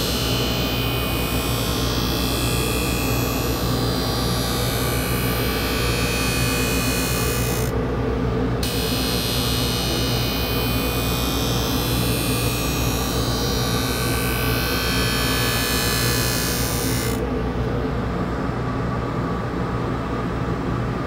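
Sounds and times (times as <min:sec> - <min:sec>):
sharpening machine motor hum: 0:00.0 - 0:07.7, 0:08.6 - 0:17.2.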